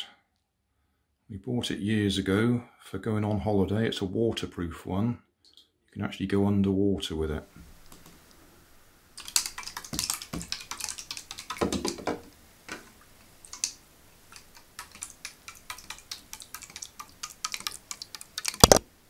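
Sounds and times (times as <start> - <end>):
paddle blades slapping water: 9.2 - 12.8.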